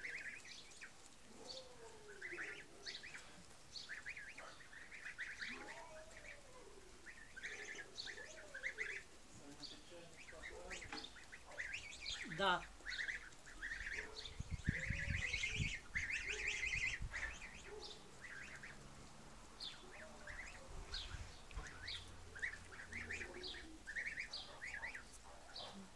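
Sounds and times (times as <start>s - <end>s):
low microphone rumbles: 14.1s - 16.1s.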